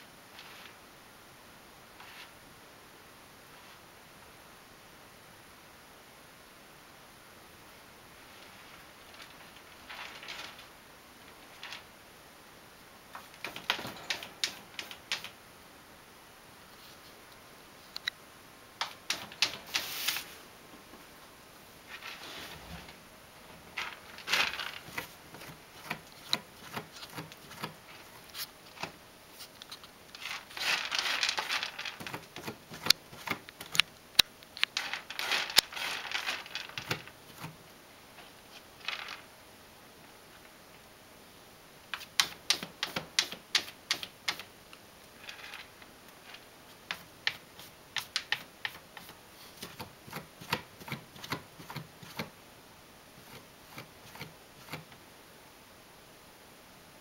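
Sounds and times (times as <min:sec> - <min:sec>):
cat scratching litter: 0:13.2 - 0:15.4, 0:18.8 - 0:20.4, 0:23.8 - 0:33.8, 0:34.7 - 0:37.6, 0:53.2 - 0:55.0.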